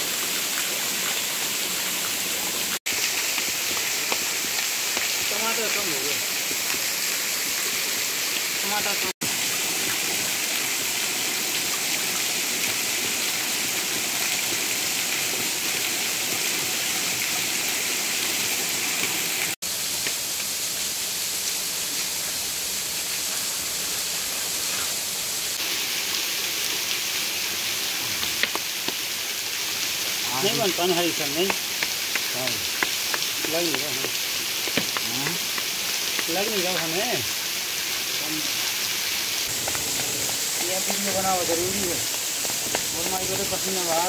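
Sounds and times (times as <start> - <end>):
waterfall rushing: 0.0 - 19.6, 22.8 - 44.0.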